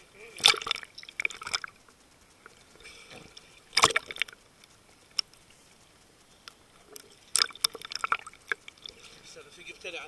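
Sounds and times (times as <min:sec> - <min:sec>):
seawater splashing and sloshing: 0:00.3 - 0:01.8, 0:03.4 - 0:04.4.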